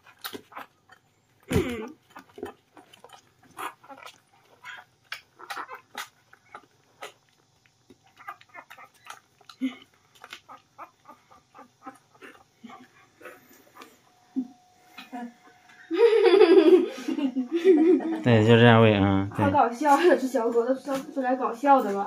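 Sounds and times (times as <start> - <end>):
puppy suckling at a bottle: 0.0 - 14.0.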